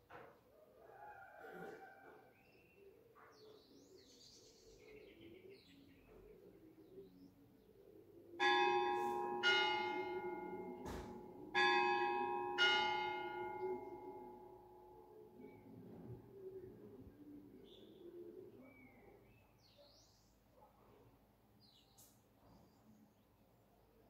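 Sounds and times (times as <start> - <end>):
bell ringing: 8.4 - 15.0.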